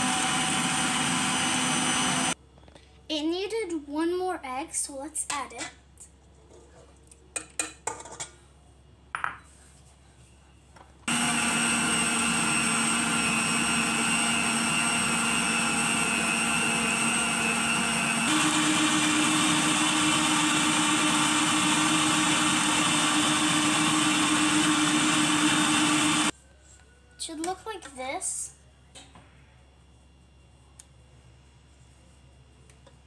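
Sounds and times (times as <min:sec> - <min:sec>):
stand mixer motor humming: 0:00.0 - 0:02.4, 0:11.1 - 0:26.3.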